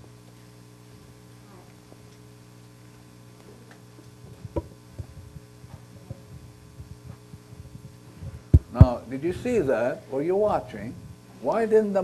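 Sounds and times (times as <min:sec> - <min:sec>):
electrical mains hum: 0:00.0 - 0:12.0
microphone handling thumps: 0:04.2 - 0:09.6.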